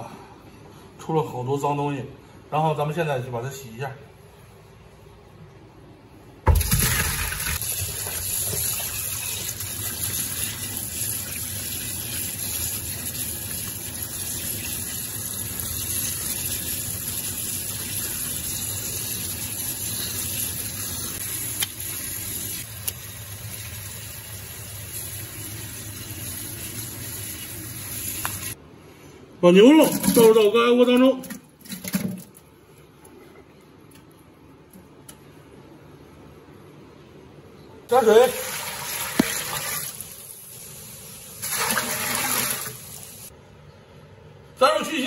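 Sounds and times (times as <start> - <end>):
tap water running into sink: 6.5 - 28.6, 38.5 - 40.2, 41.4 - 43.3.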